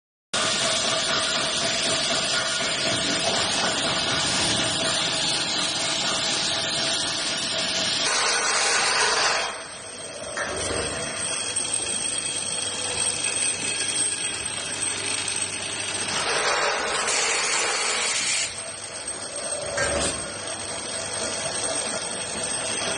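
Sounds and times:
vibratory feeder low hum: 0.4s - 8.2s, 9.6s - 17.1s.

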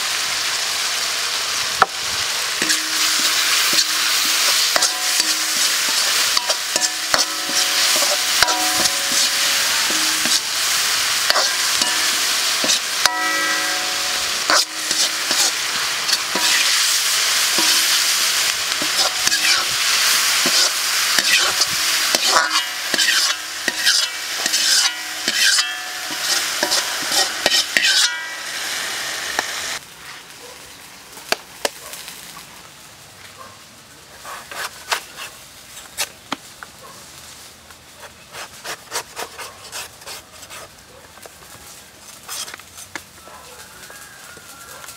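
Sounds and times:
food sizzling in hot oil: 0.0s - 31.0s
spatula scraping and knocking wok: 1.8s - 29.8s, 34.2s - 36.3s, 42.0s - 43.2s.

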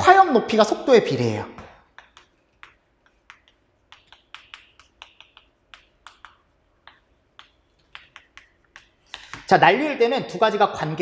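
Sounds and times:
chalk writing on chalkboard: 1.6s - 9.9s.

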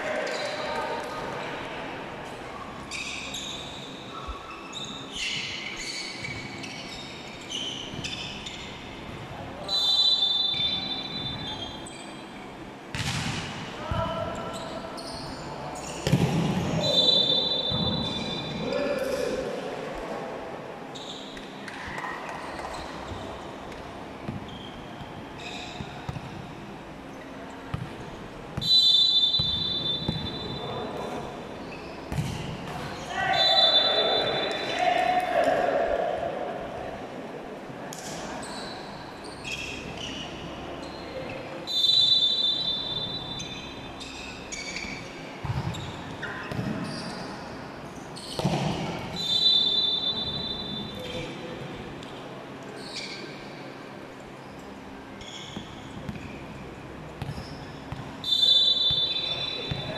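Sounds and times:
shoes squeaking on court floor: 2.6s - 12.3s, 13.9s - 18.8s, 20.9s - 28.7s, 29.3s - 34.8s, 38.0s - 41.8s, 42.9s - 51.4s, 52.1s - 53.7s, 54.3s - 59.9s
volleyball bouncing on court floor: 12.9s - 14.2s, 16.0s - 16.7s, 21.6s - 26.5s, 27.7s - 28.0s, 29.4s - 30.6s, 32.1s - 33.0s, 45.4s - 46.9s, 48.3s - 49.2s, 55.6s - 56.3s, 57.2s - 58.2s, 59.7s - 59.9s
referee's whistle blast: 33.3s - 34.8s, 49.2s - 51.0s, 58.2s - 59.9s.

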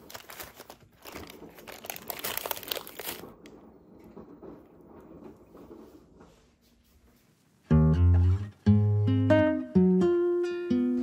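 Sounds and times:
paper wrapping crinkling: 0.0s - 3.7s.

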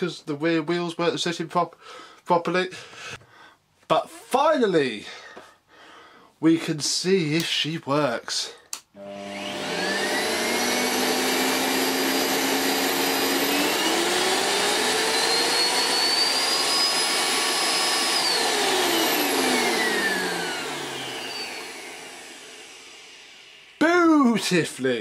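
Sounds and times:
vacuum cleaner motor running: 9.0s - 24.4s.

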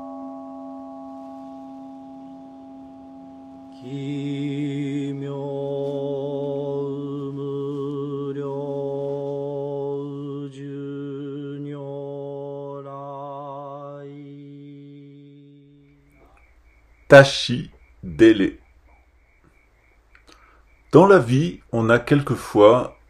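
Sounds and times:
singing bowl ringing: 0.0s - 6.3s
deep chanting: 0.0s - 16.4s.

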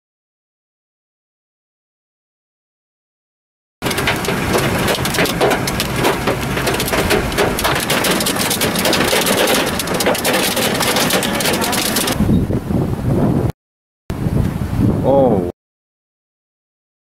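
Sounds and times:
heavy rain on car roof: 3.8s - 12.2s.

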